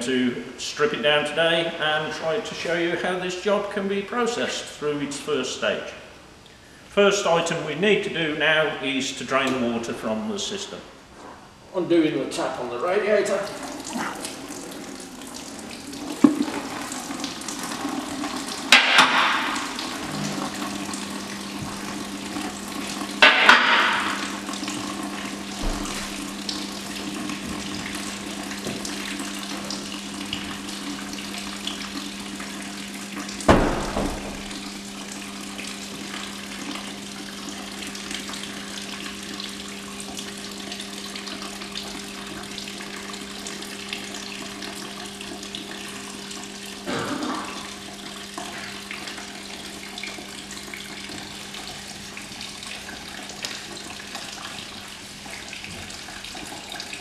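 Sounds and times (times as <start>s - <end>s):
water pouring into plastic bucket: 13.4s - 57.0s.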